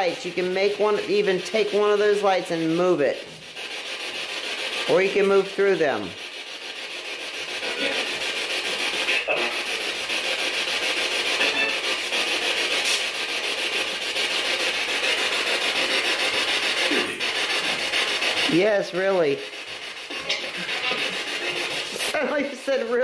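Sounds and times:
radio static hiss: 9.0 - 9.6.

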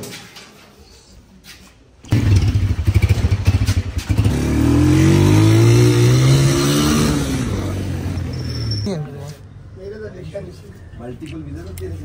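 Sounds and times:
small motorcycle engine accelerating: 2.1 - 8.8.

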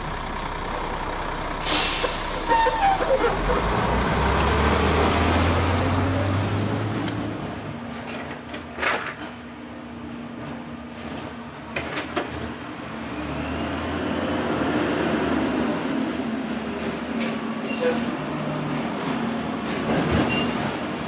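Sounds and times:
garbage truck engine and hydraulics: 0.0 - 21.0
brief squeaks: 2.0 - 3.4, 17.6 - 18.2, 20.2 - 20.7.

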